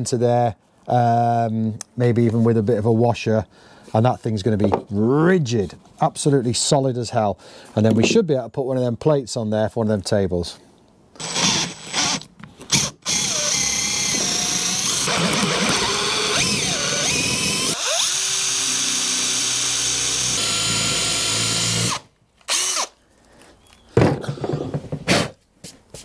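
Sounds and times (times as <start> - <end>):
cordless drill boring into wood: 11.2 - 23.0
knocks: 24.0 - 25.2.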